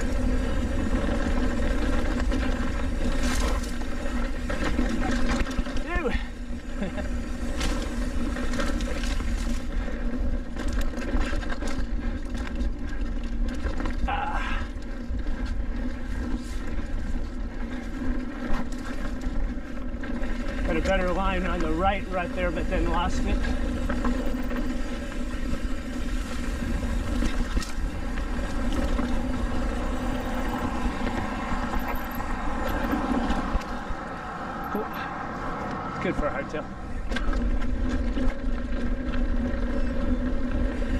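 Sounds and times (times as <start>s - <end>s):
bike rattling and clicking: 0.0s - 40.9s
bike tyres rolling on dirt: 0.0s - 40.9s.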